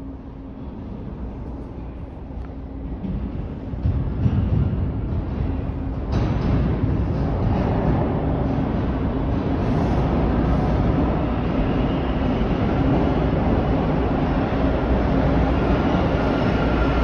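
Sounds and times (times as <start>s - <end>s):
subway train wheels rumbling on track: 0.0s - 17.0s.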